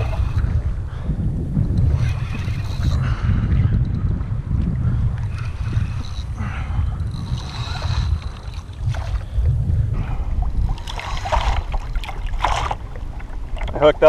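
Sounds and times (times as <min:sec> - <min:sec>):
water sloshing against kayak hull: 0:00.0 - 0:14.0
wind buffeting microphone: 0:00.0 - 0:14.0.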